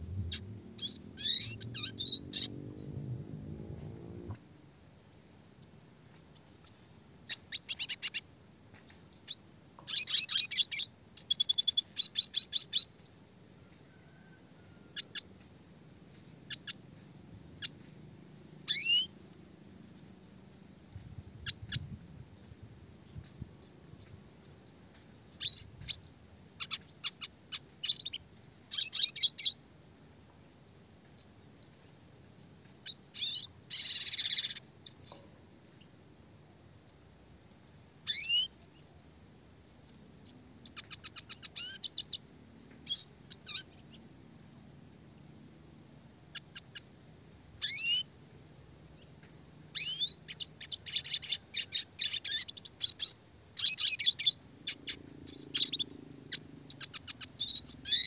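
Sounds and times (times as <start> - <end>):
bird singing chirps and trills: 0.0 - 3.0, 8.8 - 13.3, 18.6 - 19.2, 23.2 - 29.6, 30.5 - 35.9, 38.1 - 38.9, 39.9 - 44.0, 46.3 - 46.9, 47.6 - 48.1, 49.7 - 58.0.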